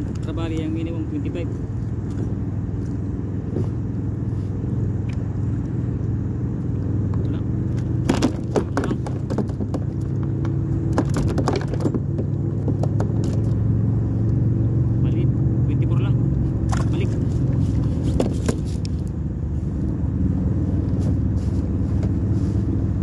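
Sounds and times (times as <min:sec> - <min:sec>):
steady low rumble: 0:00.0 - 0:23.0
fish clattering on plastic board: 0:08.0 - 0:13.5.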